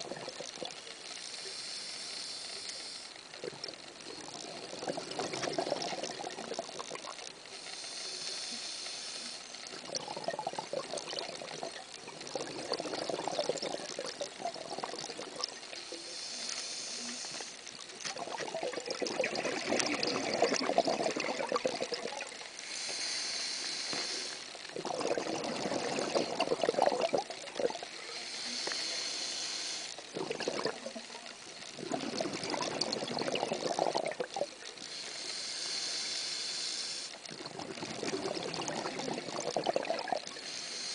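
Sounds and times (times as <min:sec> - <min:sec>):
gurgle of exhaled bubbles: 0:00.0 - 0:00.9, 0:03.4 - 0:07.3, 0:09.7 - 0:16.0, 0:18.0 - 0:22.5, 0:24.6 - 0:29.1, 0:29.9 - 0:34.9, 0:37.2 - 0:40.4
regulator hiss on inhale: 0:00.7 - 0:06.1, 0:07.2 - 0:10.1, 0:14.6 - 0:17.9, 0:19.6 - 0:24.7, 0:25.4 - 0:30.3, 0:30.9 - 0:40.9.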